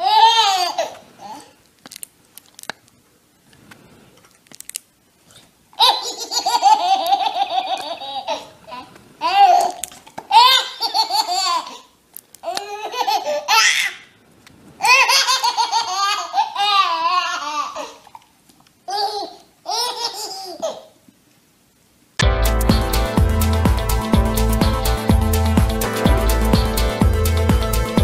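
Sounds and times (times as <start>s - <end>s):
baby laughing: 0.0s - 1.6s, 5.8s - 14.1s, 14.8s - 18.1s, 18.9s - 21.0s.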